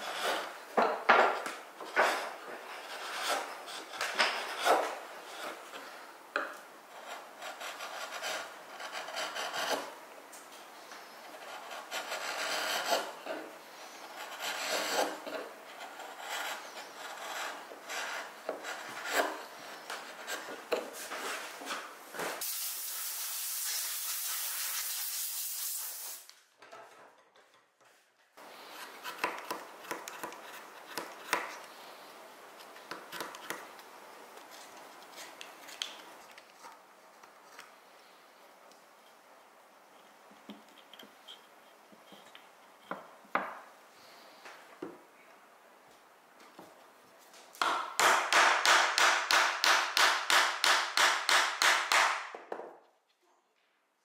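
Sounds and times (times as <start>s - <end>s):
chisel scraping wood: 0.0s - 10.0s, 10.8s - 21.9s, 28.4s - 31.8s, 32.6s - 33.8s
steady hiss: 19.2s - 26.5s
knife cutting wood: 28.7s - 31.6s.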